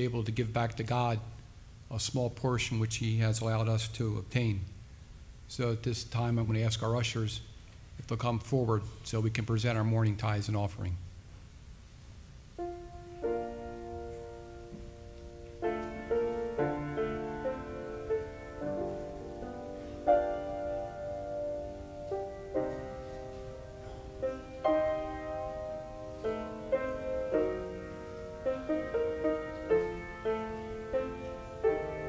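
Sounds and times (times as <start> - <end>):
slow piano piece: 12.5 - 32.0.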